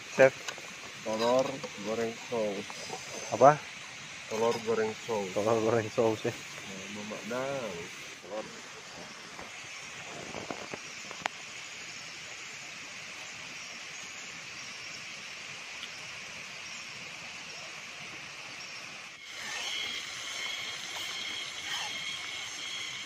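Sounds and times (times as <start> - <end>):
thin steady high tones: 0.0 - 8.6, 18.4 - 23.0.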